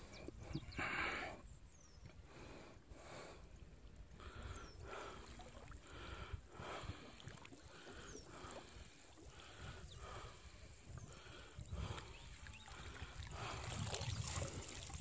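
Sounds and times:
paddle strokes in water: 0:06.6 - 0:15.0
low wind rumble on microphone: 0:08.0 - 0:15.0.

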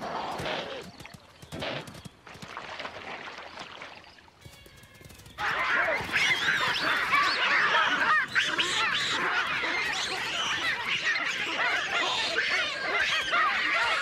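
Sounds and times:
animals squawking and yelping: 0:05.4 - 0:14.0.

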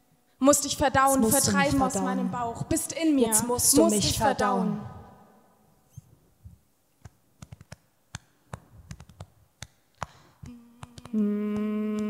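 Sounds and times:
clicks and taps: 0:07.0 - 0:11.2
woman humming a low note: 0:10.5 - 0:12.0.

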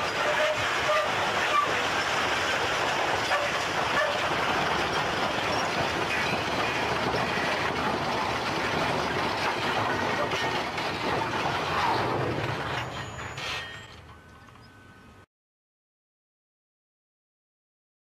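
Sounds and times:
train cars grinding and scraping: 0:00.0 - 0:15.2.

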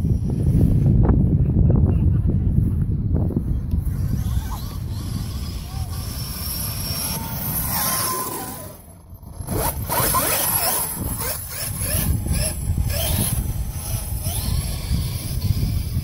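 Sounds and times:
electric motor whining: 0:03.5 - 0:16.0.

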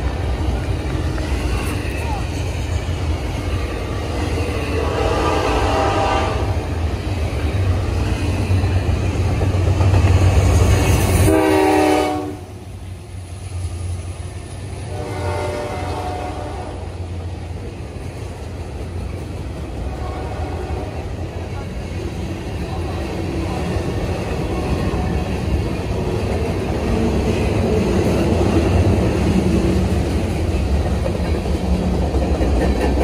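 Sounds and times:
train wheels rumbling on rails: 0:00.0 - 0:33.0
locomotive air horn blasts: 0:04.8 - 0:06.6, 0:11.3 - 0:12.5, 0:14.9 - 0:16.9.

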